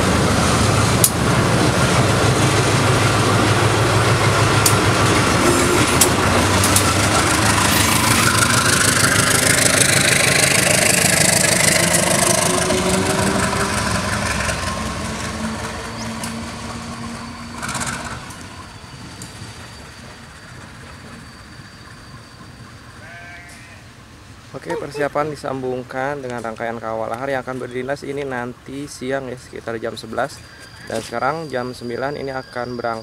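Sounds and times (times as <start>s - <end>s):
locomotive engine passing: 0.0s - 23.0s.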